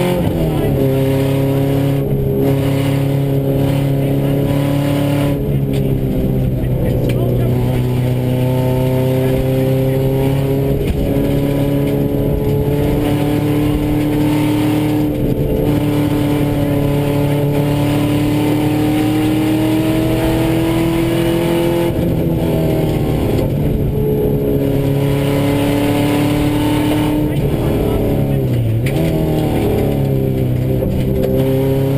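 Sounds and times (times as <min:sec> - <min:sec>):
gravel and road noise: 0:00.0 - 0:31.9
rally car engine pulling hard: 0:00.0 - 0:31.9.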